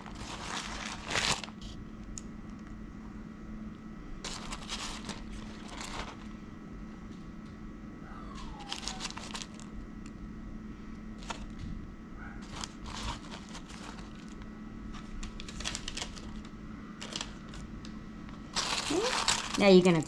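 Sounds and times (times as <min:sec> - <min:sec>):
plastic film crinkling: 0:00.0 - 0:01.8, 0:04.2 - 0:06.3, 0:08.6 - 0:09.7, 0:11.2 - 0:11.6, 0:12.4 - 0:20.0
faint steady hum: 0:00.0 - 0:20.0.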